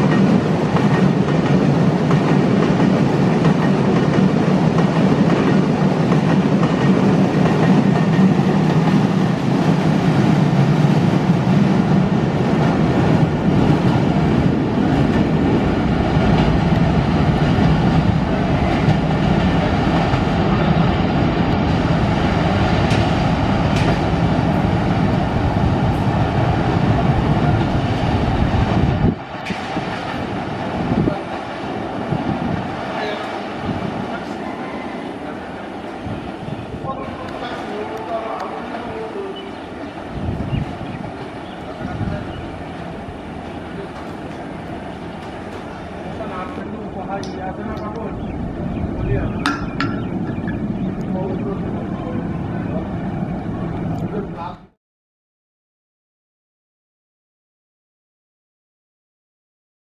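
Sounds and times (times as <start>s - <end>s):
freight train rumbling past: 0.0s - 54.8s
wheels clicking over rail joints: 43.4s - 44.5s, 49.4s - 51.2s.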